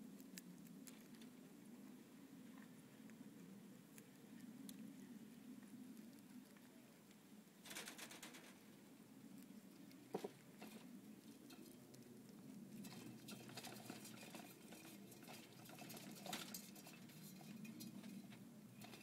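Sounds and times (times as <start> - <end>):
small animals nibbling leaves: 0.0 - 19.0
clicks on wire mesh cage: 7.7 - 8.6.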